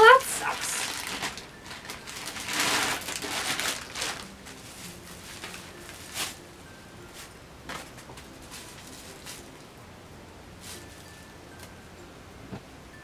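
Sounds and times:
plastic bag crinkling: 0.1 - 6.4, 8.4 - 9.5.

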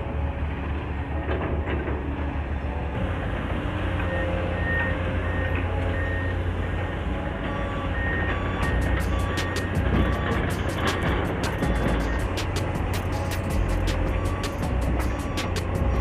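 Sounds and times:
heavy machinery engine rumble: 0.0 - 16.0
backup alarm beeping: 4.1 - 6.4, 7.4 - 10.8.

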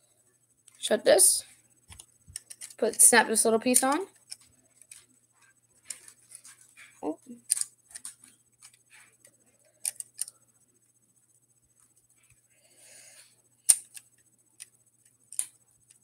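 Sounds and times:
plastic pieces clicking together: 1.9 - 2.9, 7.3 - 9.1, 9.8 - 10.4, 13.7 - 14.7, 15.3 - 16.0.

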